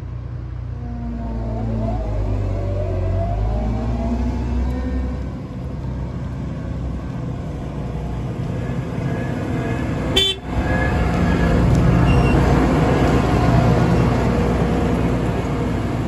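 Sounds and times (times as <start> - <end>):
combine harvester engine running: 5.2 - 16.0
brief horn toot: 10.2 - 10.6.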